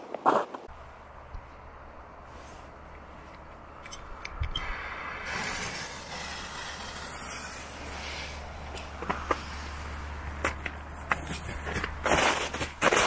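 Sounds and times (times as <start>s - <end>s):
sharp clicks: 3.8s - 4.8s
firework fuse fizzing: 4.7s - 10.2s.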